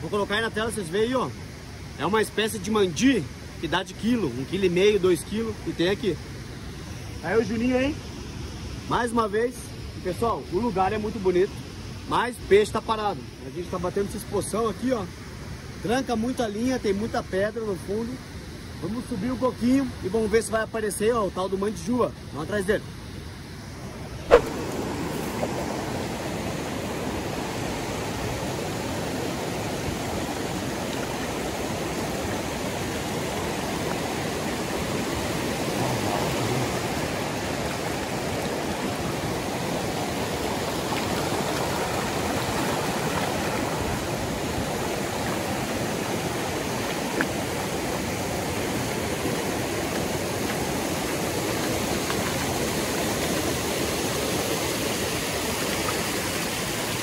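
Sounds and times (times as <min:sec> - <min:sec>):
river rapids roaring: 0:24.3 - 0:57.0.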